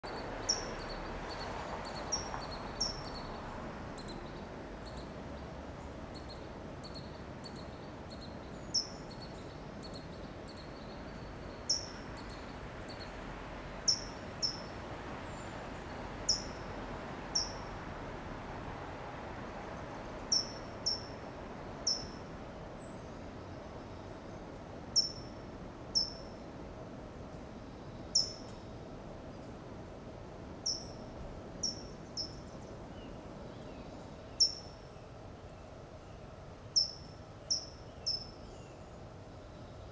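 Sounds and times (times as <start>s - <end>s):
bird chip calls: 20.3s - 21.1s, 21.9s - 22.2s, 28.1s - 28.5s, 30.7s - 31.0s, 34.4s - 34.8s, 36.8s - 38.4s.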